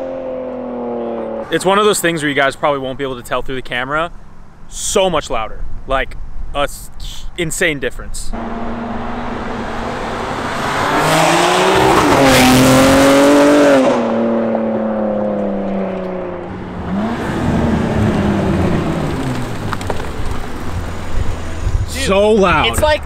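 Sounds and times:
car engine accelerating hard: 0:00.0 - 0:01.6, 0:08.3 - 0:23.0.

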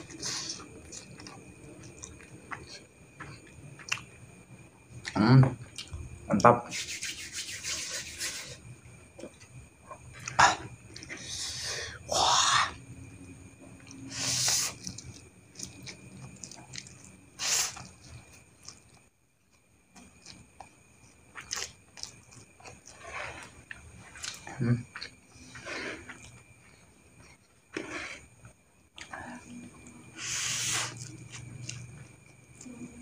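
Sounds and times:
person chewing: 0:00.0 - 0:04.1, 0:05.0 - 0:06.0, 0:09.2 - 0:11.5, 0:13.3 - 0:19.0, 0:19.9 - 0:28.2, 0:28.9 - 0:32.7.

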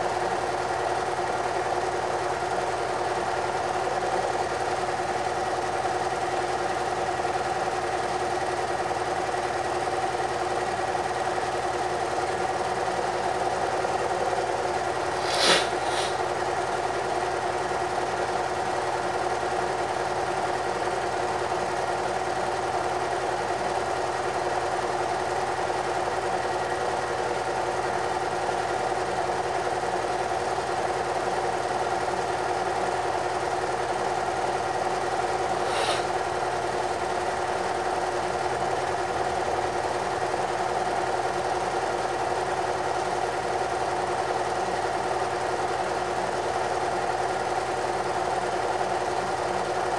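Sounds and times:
short sharp click: 0:35.7 - 0:36.1.

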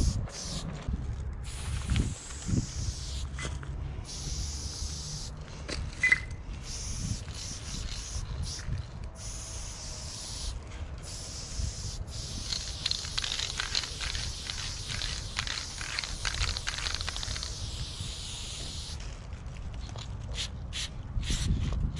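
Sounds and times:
spray paint can hissing: 0:00.0 - 0:00.7, 0:01.4 - 0:03.4, 0:04.0 - 0:05.4, 0:06.6 - 0:19.0, 0:20.3 - 0:21.8.

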